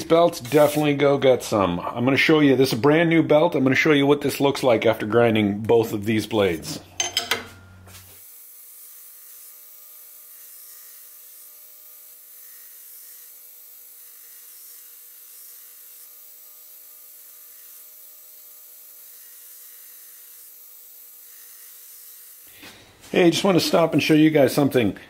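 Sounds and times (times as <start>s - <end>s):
belt grinder hissing: 8.0s - 22.7s.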